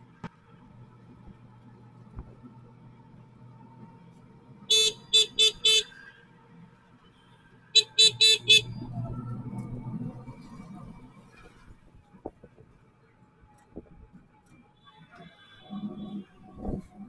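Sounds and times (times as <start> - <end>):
auto-rickshaw engine running: 0.0 - 17.0
vehicle horn tooting: 4.7 - 6.0, 7.8 - 8.7.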